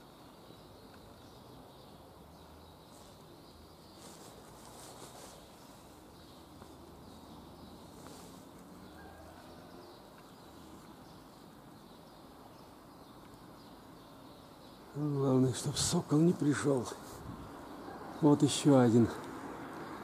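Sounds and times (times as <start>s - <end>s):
distant small birds chirping: 0.0s - 20.0s
steady low hiss: 0.0s - 20.0s.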